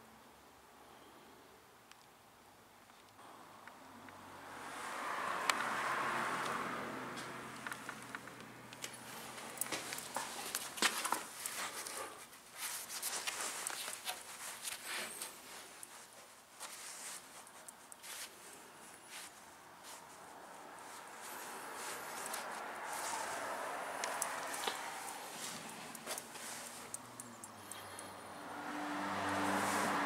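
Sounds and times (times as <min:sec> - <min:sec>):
footsteps on concrete: 0:08.8 - 0:12.1.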